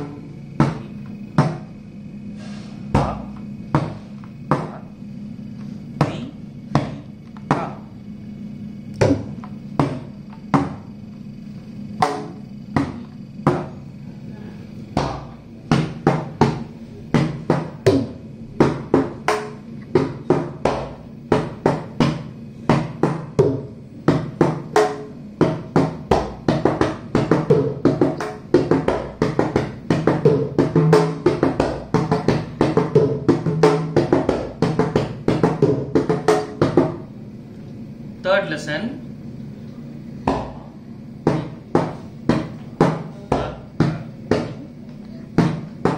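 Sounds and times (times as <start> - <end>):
barrel drum played by hand: 15.0 - 37.0.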